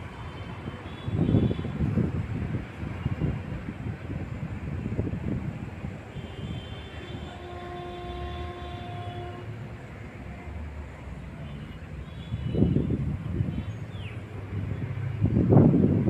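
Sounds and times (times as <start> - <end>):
wind rumble on microphone: 0.0 - 9.5, 12.2 - 16.0
traffic ambience: 0.0 - 16.0
distant horn: 0.2 - 1.9, 6.1 - 9.7.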